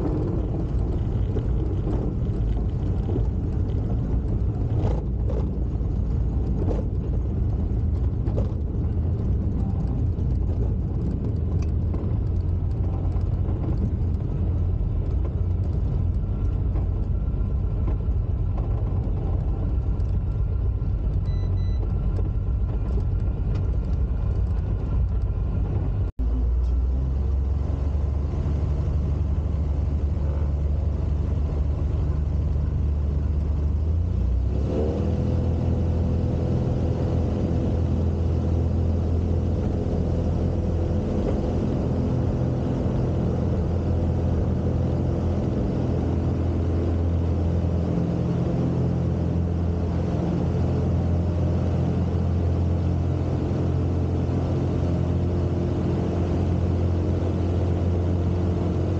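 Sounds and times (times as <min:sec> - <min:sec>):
aircraft engine and propeller: 0:00.0 - 0:58.9.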